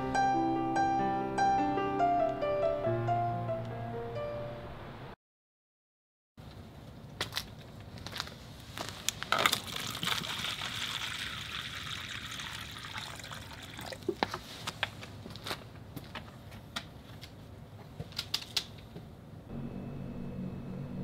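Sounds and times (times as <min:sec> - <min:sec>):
water pouring into plastic bowl: 0:09.5 - 0:14.2.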